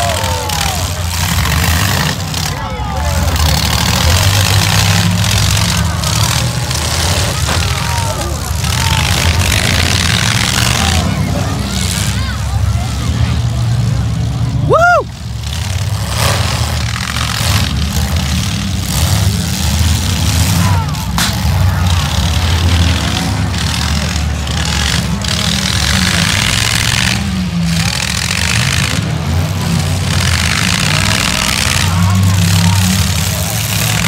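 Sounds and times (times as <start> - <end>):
car engines rumbling: 0.0 - 34.0
spectators' voices: 0.0 - 34.0
sharp crack: 20.5 - 21.7.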